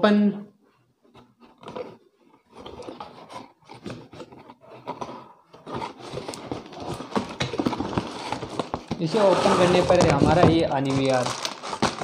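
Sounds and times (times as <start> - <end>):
cardboard box flaps scraping: 5.7 - 12.0.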